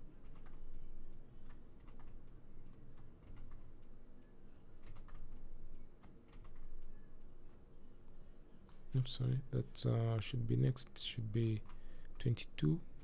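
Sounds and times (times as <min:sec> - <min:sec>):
low background hum: 0:00.0 - 0:13.0
keyboard and mouse clicking: 0:06.0 - 0:06.7.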